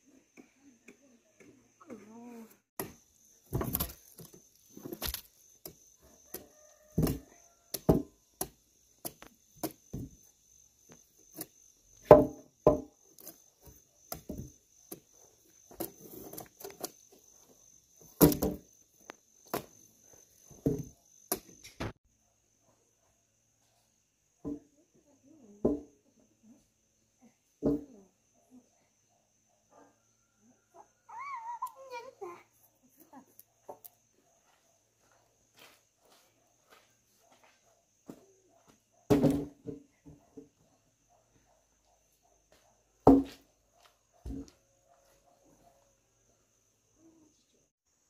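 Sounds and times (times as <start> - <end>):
knocks and thuds: 12.0 - 12.9.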